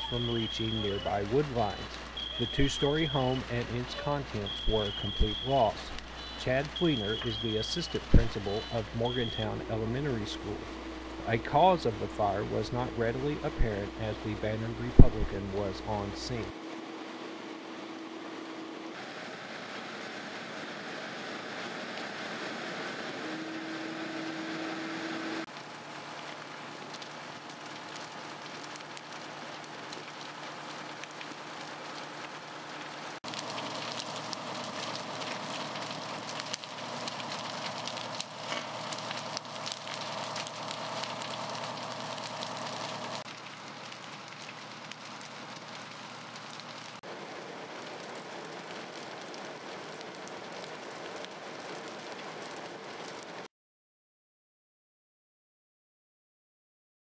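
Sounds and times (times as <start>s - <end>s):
fire truck engines running: 0.0s - 16.5s, 21.9s - 51.0s
fire hissing and crackling: 0.0s - 53.5s.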